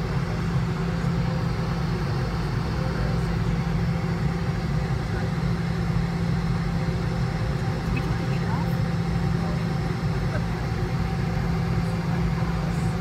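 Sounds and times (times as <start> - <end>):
jet engines idling inside cabin: 0.0 - 13.0.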